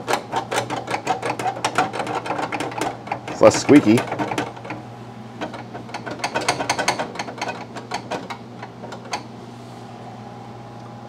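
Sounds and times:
metal rod rattling and clicking: 0.0 - 4.8, 5.4 - 9.2.

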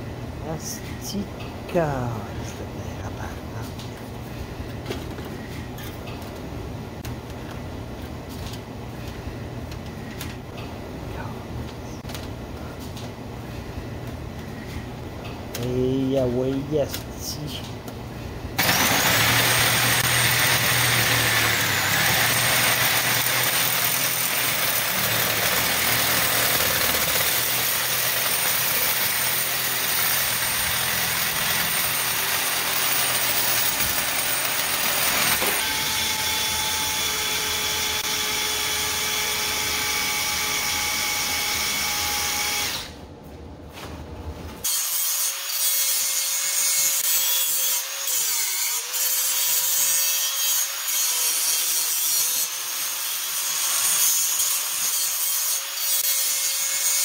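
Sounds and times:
loud grinding noise: 18.6 - 42.9
power tool motor whine: 18.6 - 43.0.

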